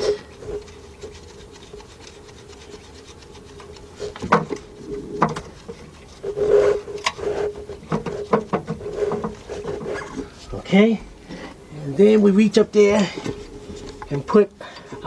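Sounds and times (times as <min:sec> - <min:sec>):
hardware clicking and scraping: 0:00.0 - 0:11.6
faint steady hum: 0:00.0 - 0:15.0.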